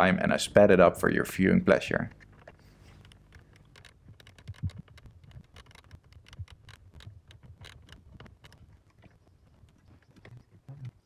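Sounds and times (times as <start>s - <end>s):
tools clicking and scraping on plastic: 2.2s - 10.0s.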